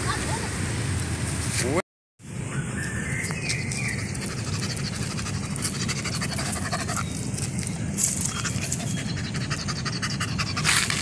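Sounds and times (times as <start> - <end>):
puppy panting: 4.0 - 7.2, 8.2 - 11.0.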